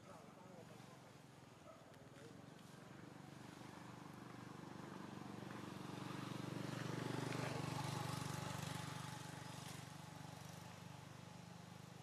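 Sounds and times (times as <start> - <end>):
vehicle engine passing by: 3.0 - 12.0.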